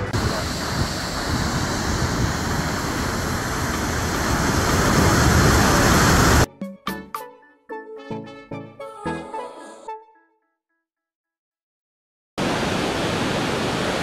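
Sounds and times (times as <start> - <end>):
waterfall rushing: 0.0 - 6.5, 12.4 - 14.0
piano music: 6.5 - 10.4.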